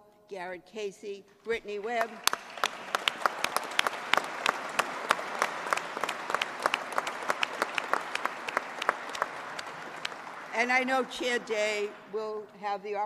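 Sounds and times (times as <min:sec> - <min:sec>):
crowd applauding: 0:01.9 - 0:12.0.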